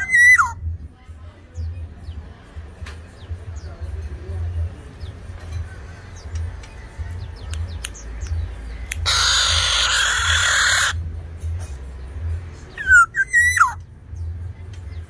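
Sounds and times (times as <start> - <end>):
oriole harsh raspy call: 9.0 - 11.0.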